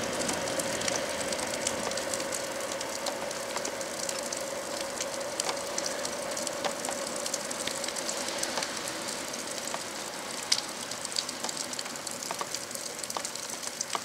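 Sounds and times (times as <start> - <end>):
steady hiss: 0.0 - 14.0
crackling clicks: 6.6 - 8.0, 11.4 - 14.0.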